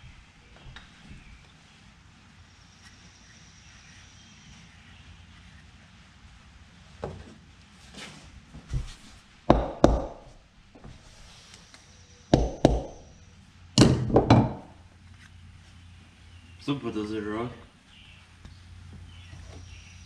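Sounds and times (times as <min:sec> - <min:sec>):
hammer knocking bearing into hub: 0:09.5 - 0:10.3, 0:12.4 - 0:13.1, 0:13.8 - 0:14.7.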